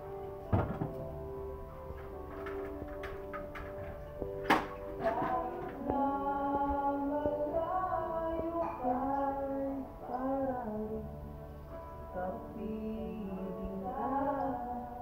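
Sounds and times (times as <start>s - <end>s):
backing music: 0.0s - 15.0s
person singing long held notes: 5.0s - 15.0s.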